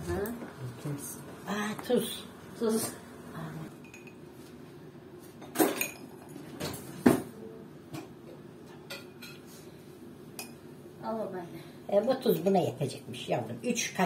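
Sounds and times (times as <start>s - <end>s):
spoon and containers clinking: 3.8s - 4.2s, 5.5s - 6.4s.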